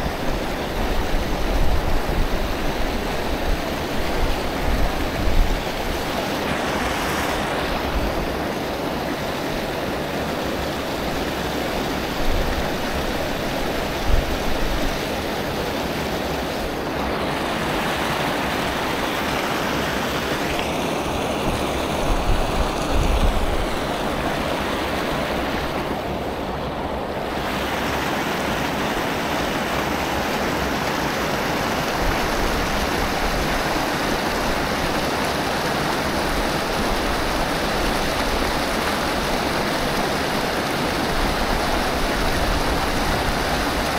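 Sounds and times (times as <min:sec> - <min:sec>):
wind rumbling on microphone: 0:00.0 - 0:08.8, 0:12.1 - 0:15.2, 0:21.1 - 0:28.6
creek water rushing: 0:00.0 - 0:43.9.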